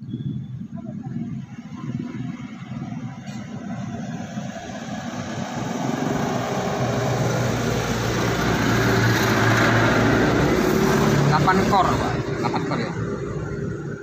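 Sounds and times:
small engine running: 3.9 - 12.2.

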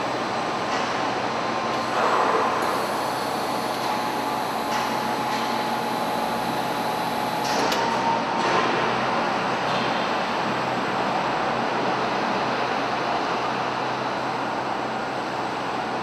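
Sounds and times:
forklift truck running: 1.8 - 8.2.

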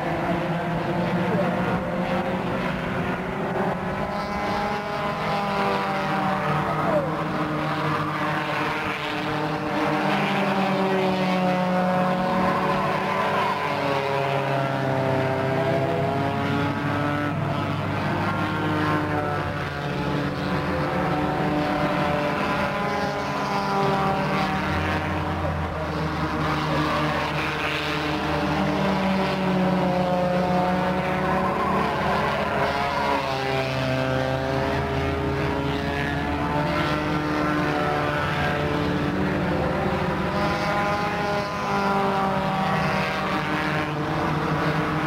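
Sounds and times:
race car engines at high revs: 0.0 - 45.0.

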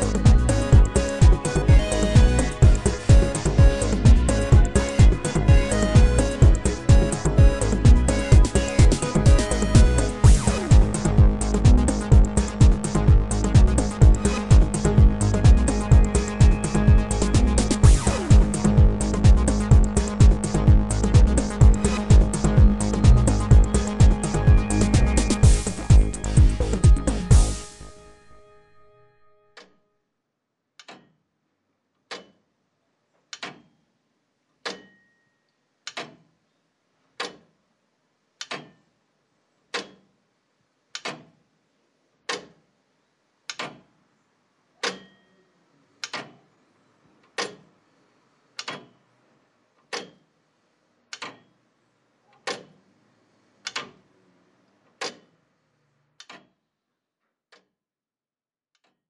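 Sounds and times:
slow sharp ticking: 0.0 - 27.8.

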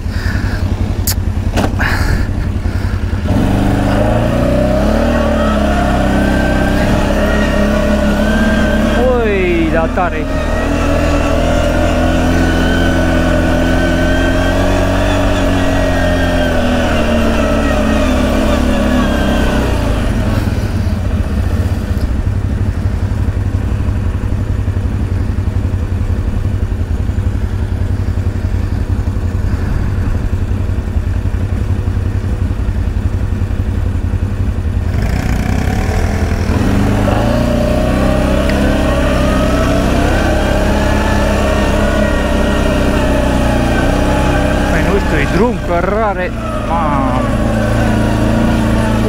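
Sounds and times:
atv engine revving: 0.0 - 49.0
low rumble: 25.8 - 34.9.

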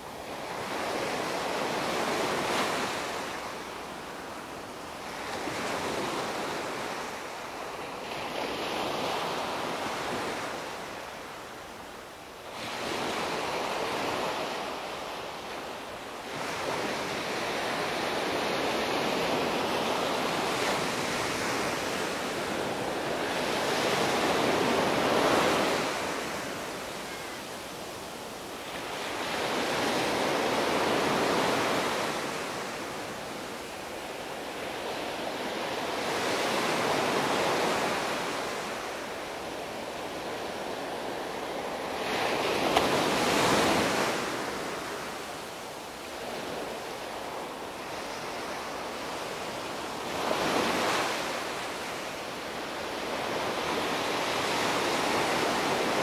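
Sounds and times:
small waves breaking on beach: 12.5 - 56.0.

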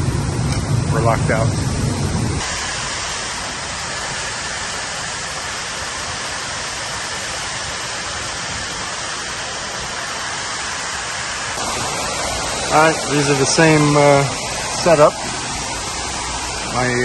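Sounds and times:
water rushing in cooling tower: 0.0 - 17.0.

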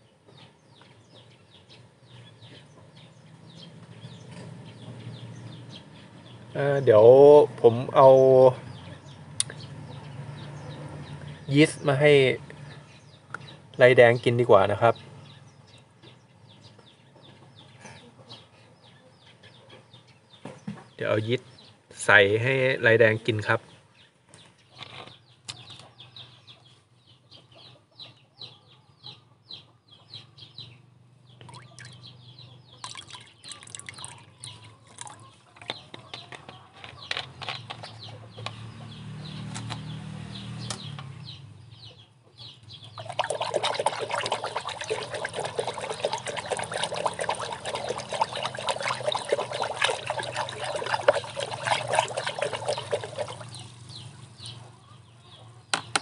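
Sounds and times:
small splashes: 31.4 - 32.1, 32.8 - 35.2, 43.0 - 54.0
water churned and splashed with stick: 43.0 - 53.8.

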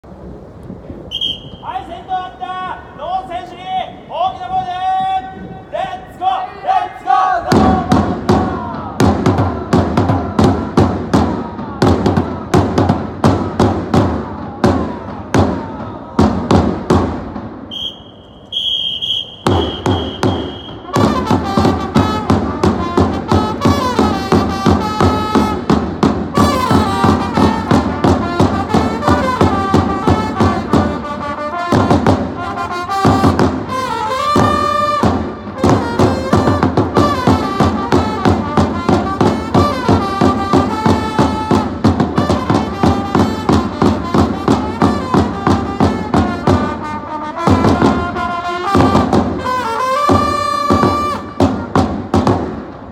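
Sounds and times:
steady drum beat: 7.5 - 17.7, 19.3 - 52.9
trumpets playing: 17.7 - 52.1.

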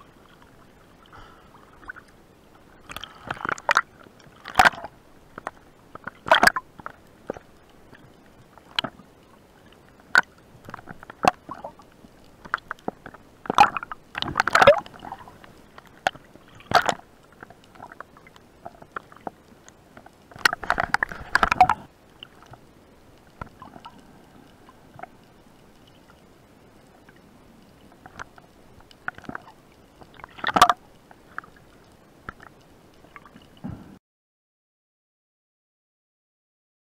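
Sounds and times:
underwater bubbling: 0.0 - 34.0
underwater clicks and knocks: 2.8 - 9.0, 10.1 - 19.4, 20.0 - 22.6, 27.9 - 31.6.

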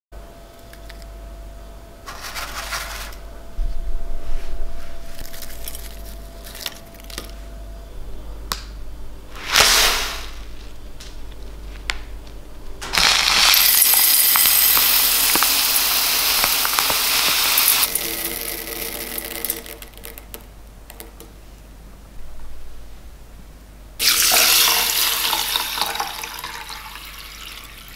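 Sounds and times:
rustles of handling: 2.1 - 3.2
dry lentils rattling into a pot: 9.4 - 10.4, 12.8 - 20.3.

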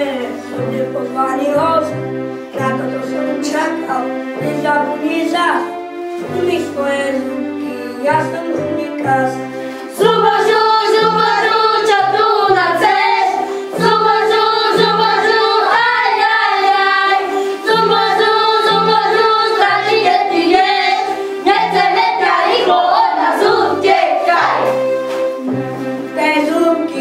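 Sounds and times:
backing music with bass line: 5.7 - 27.0
children singing: 9.9 - 27.0.

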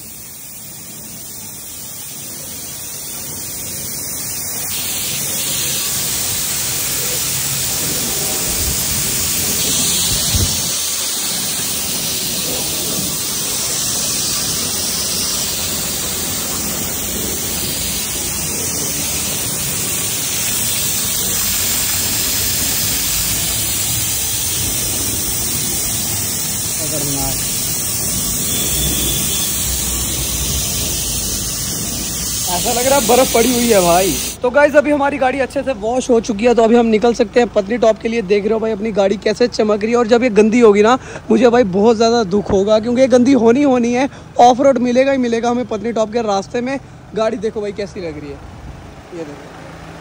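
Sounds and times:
hose water jet spraying: 0.0 - 38.6.

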